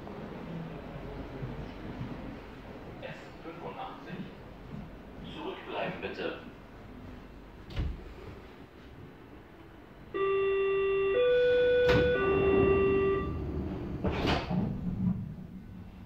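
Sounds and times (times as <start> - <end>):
train car rumble: 0.0 - 16.0
electronic three-tone chime: 10.2 - 13.3.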